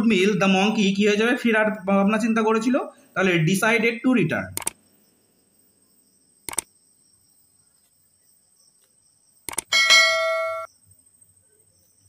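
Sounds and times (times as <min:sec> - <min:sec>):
mouse click: 0:04.6 - 0:04.8, 0:06.5 - 0:06.7, 0:09.5 - 0:09.7
notification bell chime: 0:09.7 - 0:10.7.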